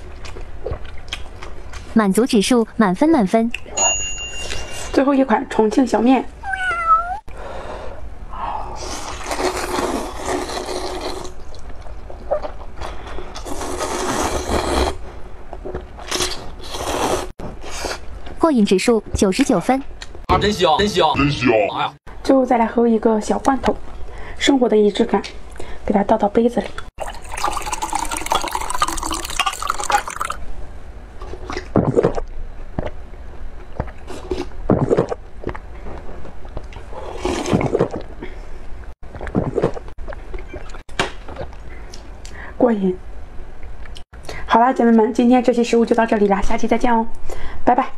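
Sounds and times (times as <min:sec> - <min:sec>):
person slurping noodles: 0:08.8 - 0:11.4, 0:13.4 - 0:15.0, 0:16.0 - 0:18.0, 0:36.9 - 0:38.0
liquid pouring into a glass: 0:27.0 - 0:30.4
sipping from a mug: 0:27.0 - 0:30.4.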